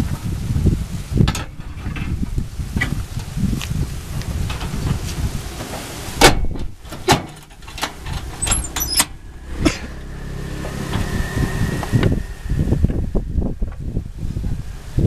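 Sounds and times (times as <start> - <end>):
steady low hum: 3.4 - 15.0.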